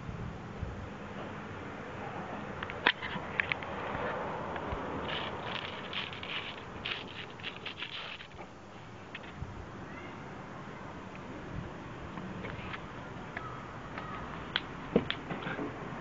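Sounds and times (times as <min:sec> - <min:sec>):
nails scratching concrete tile: 0:04.6 - 0:08.4.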